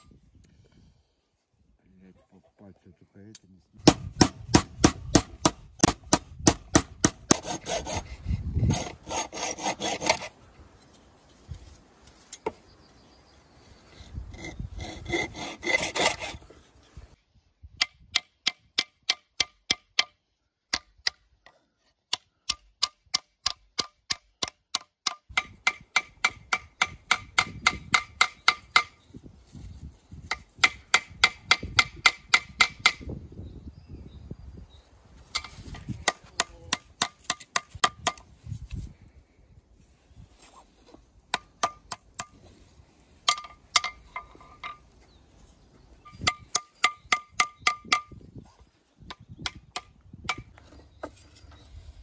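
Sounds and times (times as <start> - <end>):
hacksaw rasping through metal: 7.0 - 10.3, 14.4 - 16.4.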